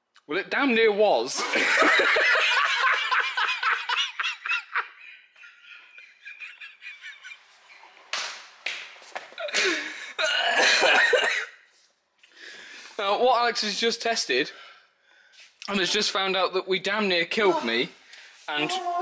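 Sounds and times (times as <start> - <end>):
person laughing heartily: 1.4 - 7.8.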